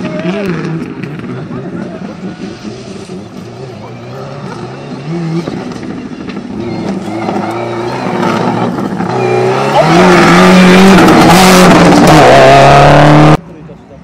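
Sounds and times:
rally car engine revving: 0:00.0 - 0:13.4.

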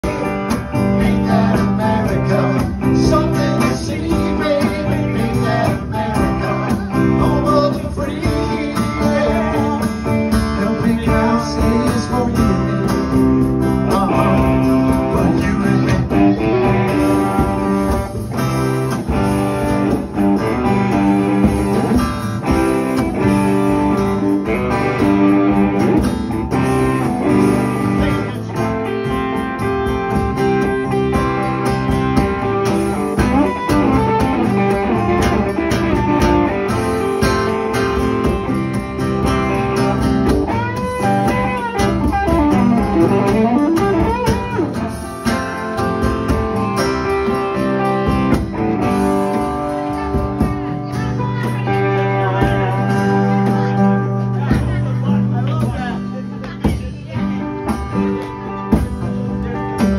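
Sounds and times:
electric guitar: 0:00.0 - 0:59.9
strummed acoustic guitars: 0:00.0 - 0:59.9
men singing into microphones: 0:00.6 - 0:16.9.

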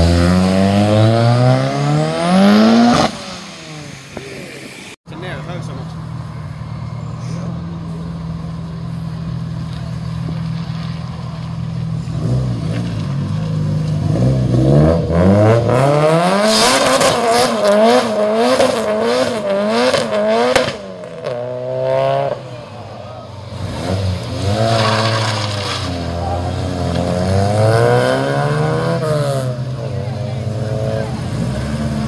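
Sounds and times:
car engine revving: 0:00.0 - 0:05.0, 0:07.2 - 0:32.0
tyre screech: 0:22.9 - 0:27.1.

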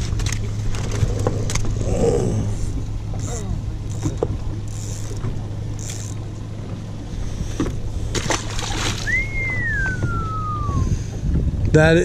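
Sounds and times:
water splashing against boat hull: 0:00.0 - 0:11.7
low motor hum: 0:00.0 - 0:12.0
sliding whistle: 0:09.0 - 0:10.9.

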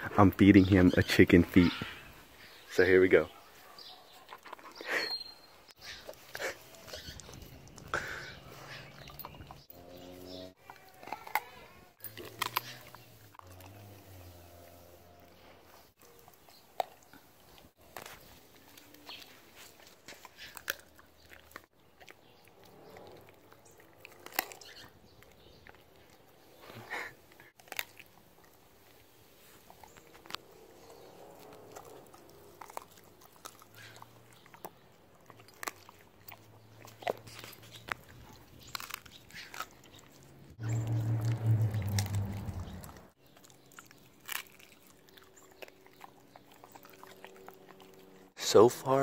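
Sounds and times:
teeth crunching on bone: 0:05.8 - 0:09.6, 0:10.6 - 0:14.0, 0:15.9 - 0:26.4, 0:27.3 - 0:48.3
dog chewing on bone: 0:05.9 - 0:13.8, 0:15.8 - 0:26.4, 0:27.5 - 0:48.3
low hum: 0:40.6 - 0:43.1.

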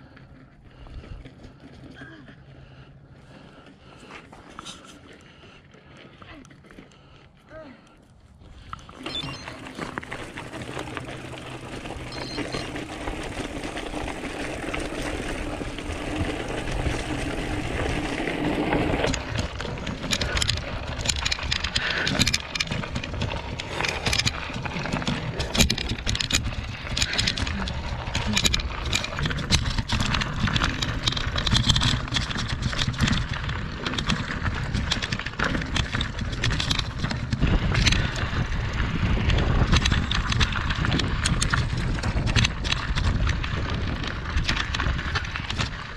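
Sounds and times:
bike rattling over rocky trail: 0:00.0 - 0:07.5, 0:08.4 - 0:45.9
wind rumble on microphone: 0:14.7 - 0:45.9
sharp clicks and knocks: 0:16.1 - 0:38.2.

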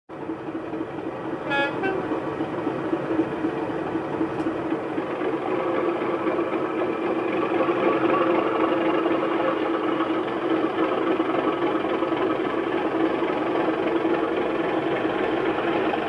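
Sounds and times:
diesel engine drone: 0:00.1 - 0:16.0
two-note horn: 0:01.4 - 0:02.1.

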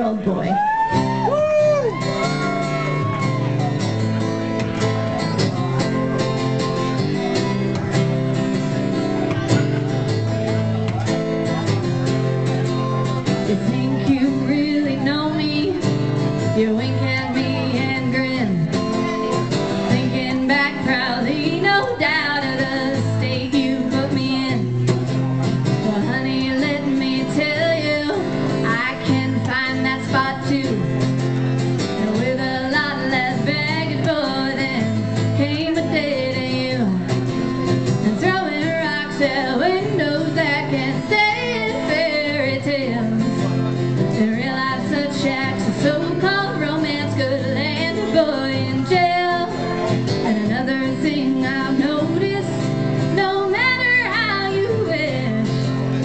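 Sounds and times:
strummed acoustic guitar: 0:00.9 - 0:56.0
woman singing into microphone: 0:13.4 - 0:18.9, 0:19.8 - 0:24.8, 0:25.7 - 0:31.1, 0:31.8 - 0:56.0.

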